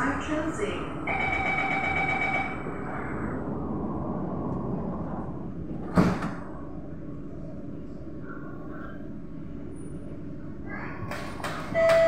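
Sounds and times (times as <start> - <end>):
train door warning tone: 1.0 - 2.7, 11.5 - 12.0
sliding doors closing with thump: 5.7 - 6.6, 11.0 - 12.0.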